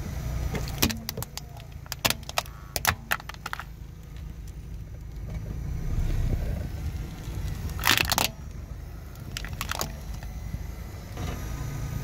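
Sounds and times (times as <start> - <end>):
car rolling slowly on asphalt: 0.0 - 12.0
sharp clicks and cracks: 0.6 - 5.5, 6.8 - 10.3.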